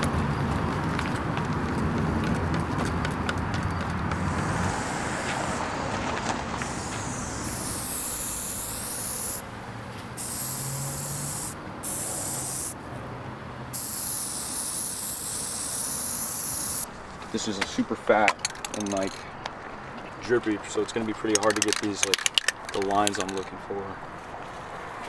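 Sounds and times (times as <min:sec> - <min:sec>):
spray paint can hissing: 0:04.1 - 0:05.7, 0:06.5 - 0:09.4, 0:10.2 - 0:12.8, 0:13.7 - 0:16.9.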